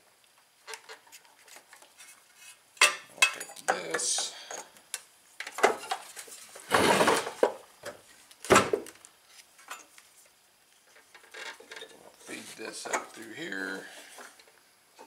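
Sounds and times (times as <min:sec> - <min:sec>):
engine scraping on workbench: 0:06.6 - 0:07.4.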